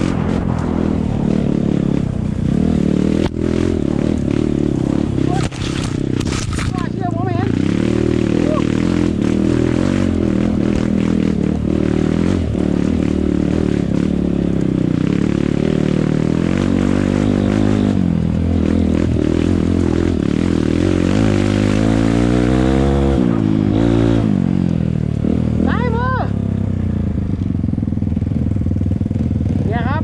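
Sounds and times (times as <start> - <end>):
dirt bike engine revving: 0.0 - 30.0
rattling on rough ground: 4.8 - 7.4.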